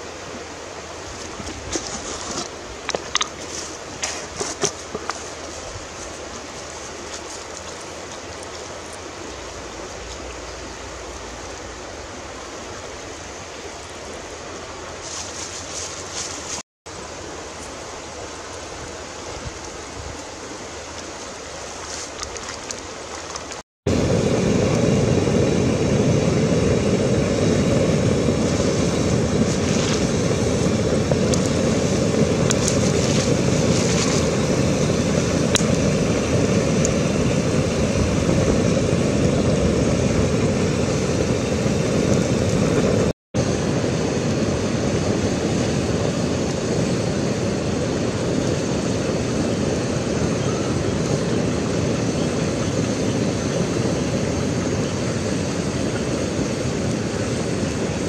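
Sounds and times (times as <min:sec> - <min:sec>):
soup boiling and bubbling: 0:01.1 - 0:13.2, 0:20.2 - 0:50.1.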